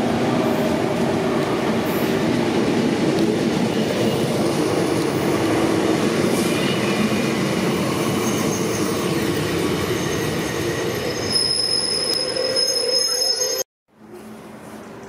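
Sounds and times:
electric train rolling past: 0.0 - 13.6
high-pitched squeal: 8.1 - 13.7.

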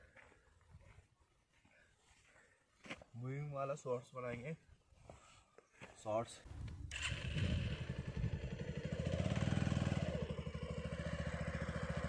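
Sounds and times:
motorcycle engine at low revs: 6.6 - 12.0.

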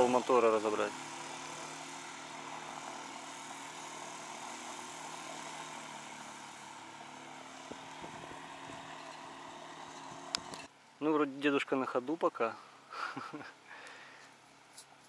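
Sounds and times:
outboard motor running: 0.0 - 10.7.

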